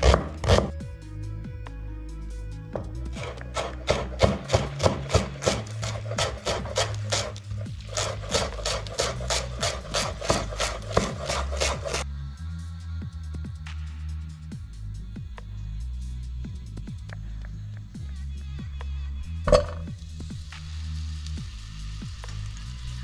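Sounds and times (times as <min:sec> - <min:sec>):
knife chopping on wooden board: 0:00.0 - 0:00.7, 0:03.2 - 0:12.0.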